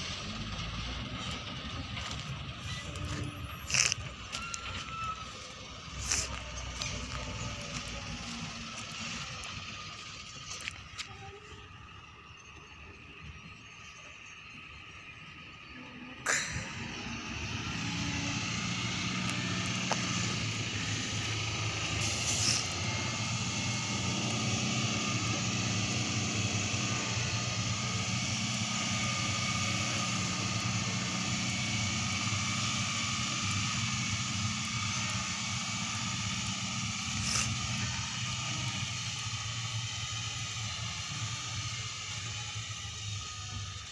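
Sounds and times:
dump truck diesel engine: 0:00.0 - 0:43.9
broad hiss: 0:16.3 - 0:43.5.

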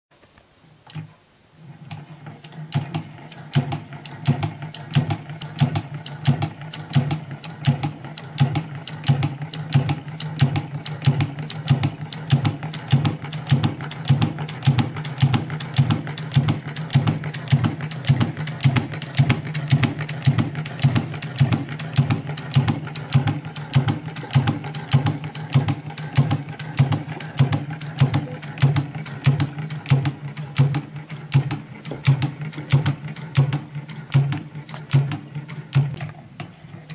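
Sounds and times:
sewing machine clattering: 0:00.9 - 0:36.9.

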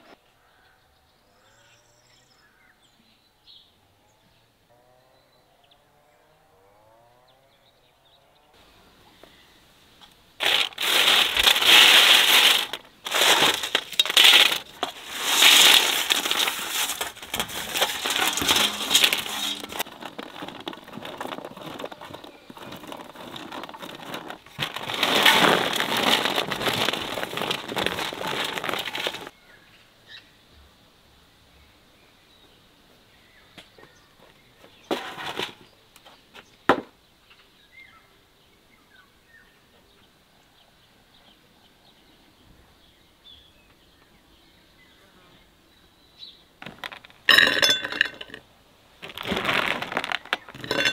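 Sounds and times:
dried fruit slices sliding on metal tray: 0:10.4 - 0:26.6.

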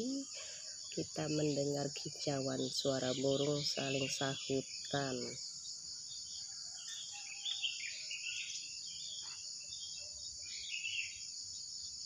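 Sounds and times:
birds chirping: 0:00.0 - 0:12.0
high insect drone: 0:00.0 - 0:12.0.

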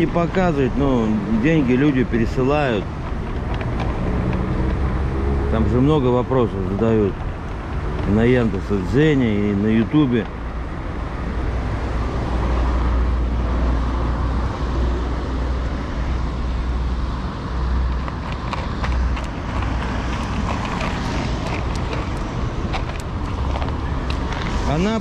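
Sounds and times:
low rumble of road traffic: 0:00.0 - 0:25.0.

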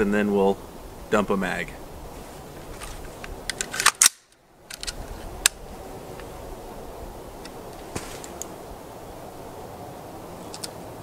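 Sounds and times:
metallic clicks of rifle handling: 0:03.2 - 0:05.6.

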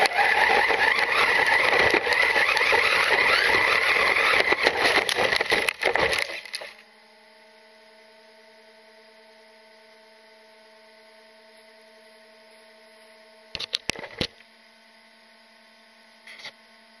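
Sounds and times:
faint electronic hum: 0:00.0 - 0:17.0.

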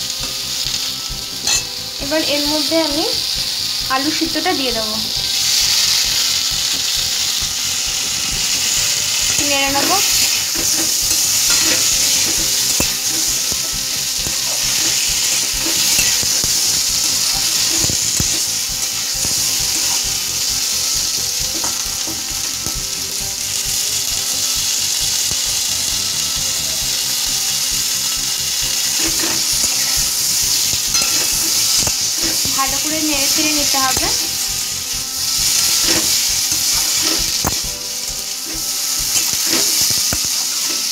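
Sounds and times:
food sizzling in hot oil: 0:00.0 - 0:40.9
metal spatula scraping pan: 0:08.0 - 0:18.9, 0:28.8 - 0:37.7.

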